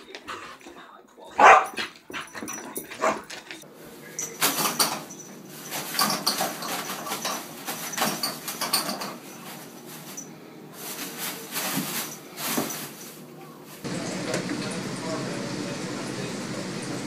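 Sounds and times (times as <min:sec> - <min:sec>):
toilet paper rustling: 0:03.0 - 0:14.5.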